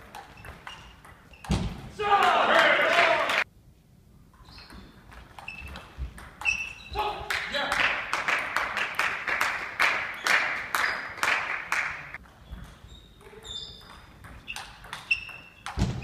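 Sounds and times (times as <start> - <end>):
shoes squeaking: 0.0 - 1.8, 4.4 - 7.2, 10.0 - 11.4, 12.1 - 16.0.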